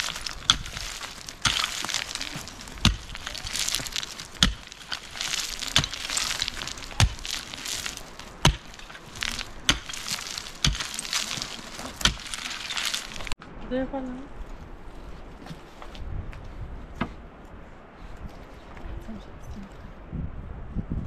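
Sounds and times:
rough rustling: 0:00.0 - 0:13.4.

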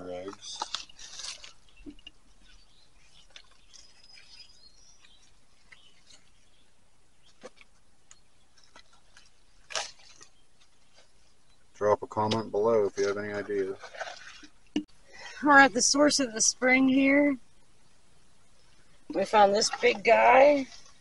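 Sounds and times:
background hiss: 0:00.0 - 0:13.8, 0:14.6 - 0:21.0
short rustle: 0:00.3 - 0:06.5.

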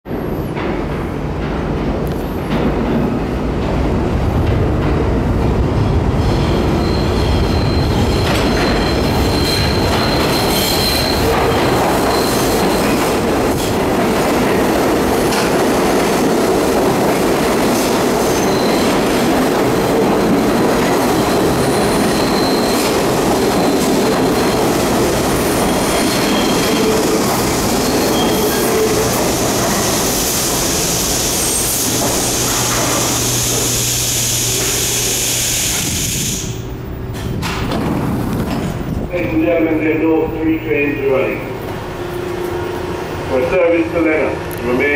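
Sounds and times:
steel wheels rumbling on rail: 0:00.1 - 0:44.9
high wheel squeal: 0:06.2 - 0:13.2, 0:18.2 - 0:19.1, 0:21.0 - 0:24.9, 0:25.5 - 0:29.1, 0:30.6 - 0:36.6.

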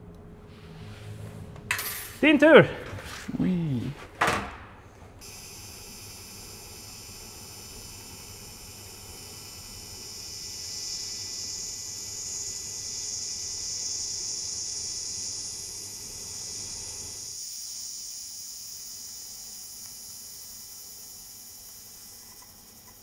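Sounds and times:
welding arc hiss: 0:05.2 - 0:23.0.

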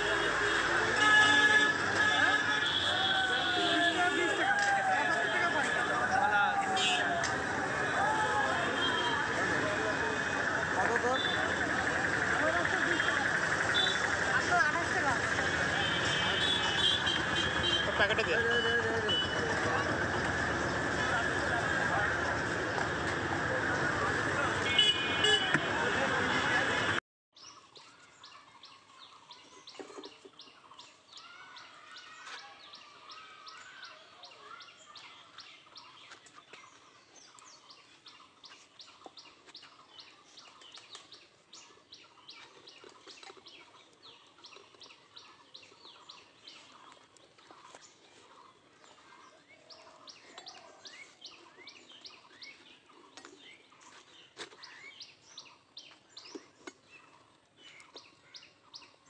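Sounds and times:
small birds chirping: 0:27.4 - 0:59.0.

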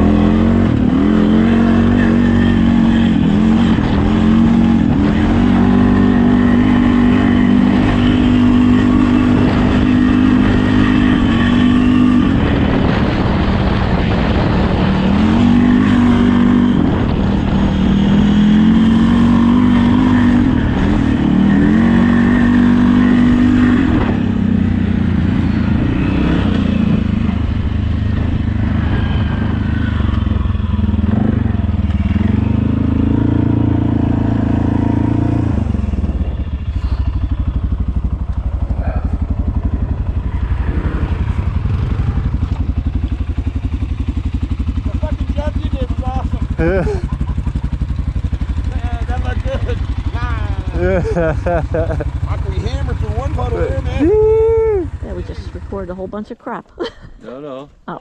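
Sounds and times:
atv engine revving and idling: 0:00.0 - 0:58.0.

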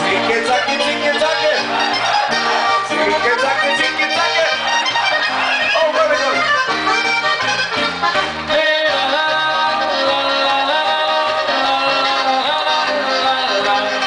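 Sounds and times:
accordion playing polka: 0:00.0 - 0:14.0.

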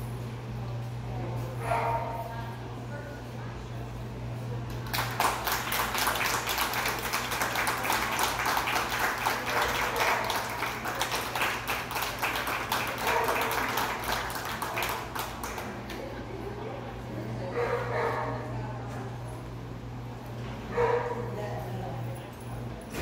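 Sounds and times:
audience applauding: 0:04.8 - 0:16.0.

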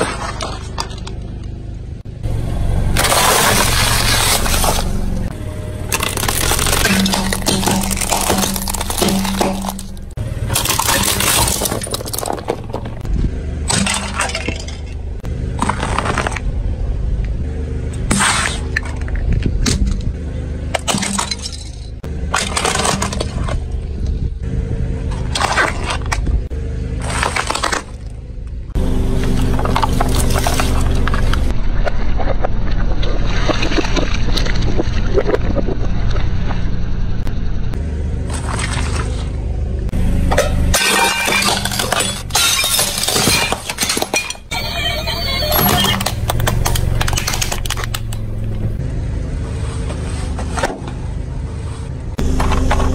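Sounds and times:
low steady hum: 0:00.0 - 0:52.9
tyre crushing brittle objects: 0:03.0 - 0:05.2, 0:05.8 - 0:13.1, 0:29.2 - 0:31.5, 0:45.6 - 0:48.7
shards crunching and clinking: 0:03.0 - 0:16.4, 0:20.7 - 0:23.7, 0:40.3 - 0:48.6
ceramic plate shattering: 0:06.0 - 0:12.6, 0:40.4 - 0:44.6.

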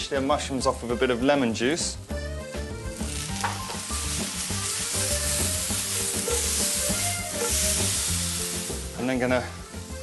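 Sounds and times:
mushrooms sizzling in a pan: 0:02.8 - 0:10.0.

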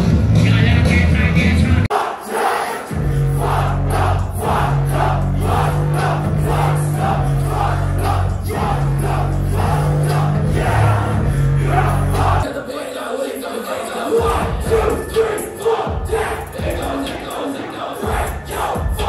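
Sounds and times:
loud live music with heavy bass: 0:00.0 - 0:01.9, 0:02.9 - 0:12.7, 0:13.5 - 0:19.0
crowd shouting along: 0:01.9 - 0:12.7.

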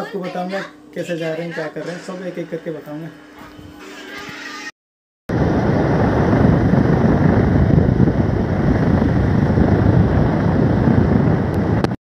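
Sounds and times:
wind rumble on microphone: 0:05.3 - 0:12.0.

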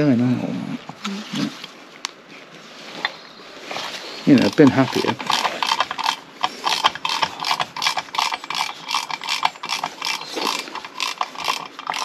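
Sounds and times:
hand ratchet clicking: 0:04.5 - 0:12.0.

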